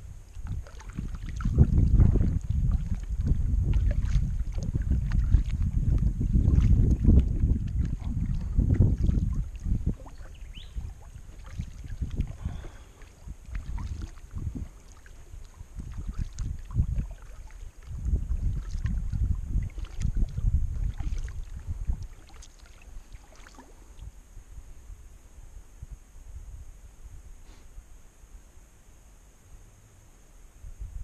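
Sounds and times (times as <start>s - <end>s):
wind buffeting microphone: 0.0s - 24.7s
paddle strokes splashing: 0.2s - 24.0s.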